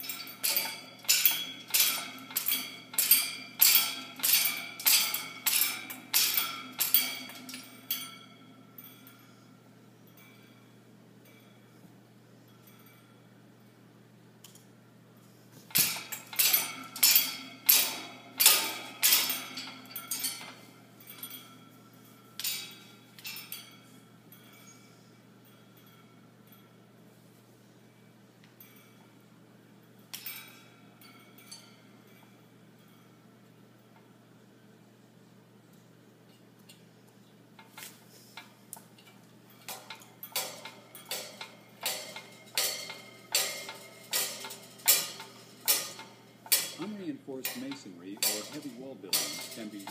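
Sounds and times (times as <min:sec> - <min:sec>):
bird clanking metal wire cage: 0:00.0 - 0:07.7, 0:15.7 - 0:21.4, 0:39.0 - 0:49.9.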